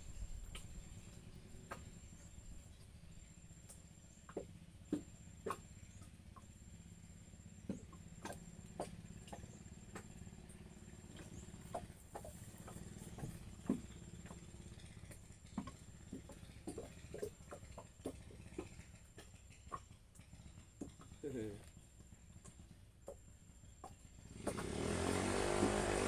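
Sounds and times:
light clicks and knocks: 7.6s - 24.8s.

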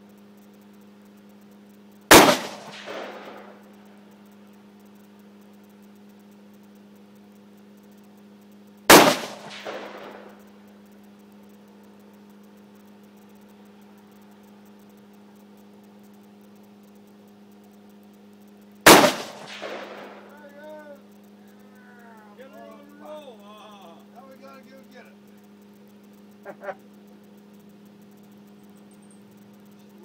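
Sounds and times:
steady low hum: 0.0s - 30.0s
rifle shot with echo: 2.1s - 3.6s, 8.9s - 10.4s, 18.9s - 20.3s.

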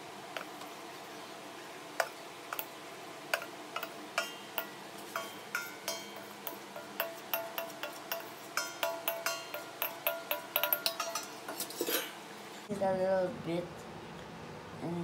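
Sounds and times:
metal bowl clinking on pot rim: 3.4s - 12.2s.

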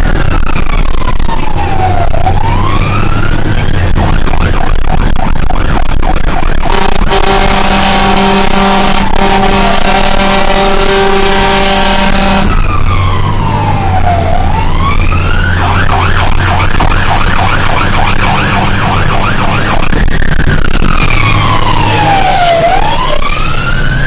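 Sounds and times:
siren wailing and yelping: 0.0s - 24.0s
truck engine hum: 0.0s - 24.0s
fire engine horn blast: 6.6s - 12.8s.

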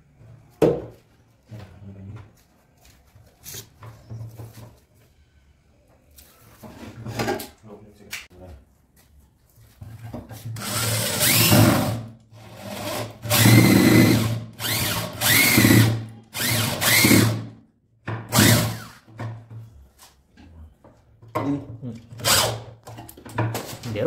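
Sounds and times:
electric drill whining: 10.6s - 17.4s, 18.3s - 19.0s.

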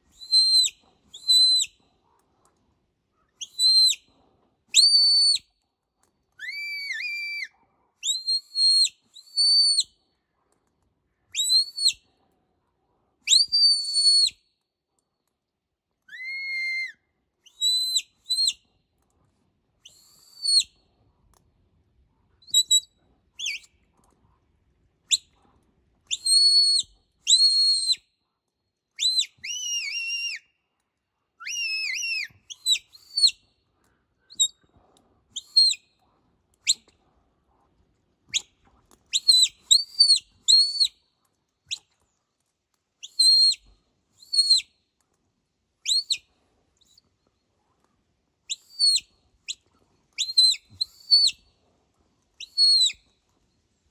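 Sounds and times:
high whistle commands: 0.2s - 1.7s, 4.8s - 5.5s, 16.1s - 18.6s, 29.0s - 30.5s, 31.4s - 33.3s.

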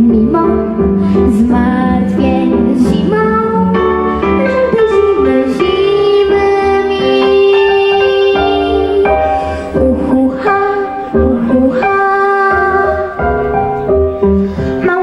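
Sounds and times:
girl singing into microphone: 0.0s - 13.6s, 14.6s - 15.0s
backing music: 0.0s - 15.0s.

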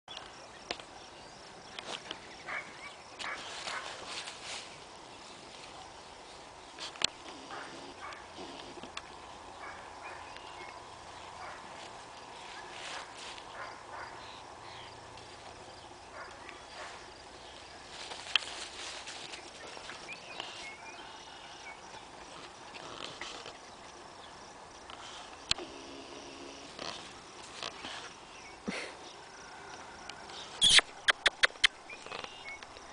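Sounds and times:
puppy rustling in weeds: 3.2s - 7.0s, 11.3s - 13.7s, 16.8s - 20.8s
sharp clicks: 30.6s - 32.8s.

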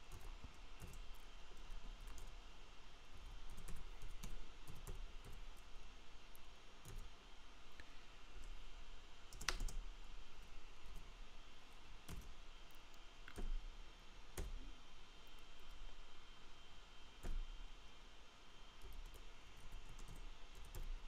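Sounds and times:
computer keyboard typing: 0.1s - 2.4s, 3.3s - 5.7s, 6.8s - 7.1s, 9.3s - 9.8s, 12.1s - 12.4s, 18.8s - 21.0s.

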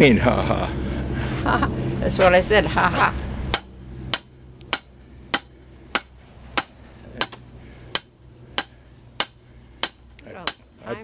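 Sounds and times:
sledgehammer striking metal: 3.5s - 10.8s
sharp metallic clinks: 3.5s - 11.0s.

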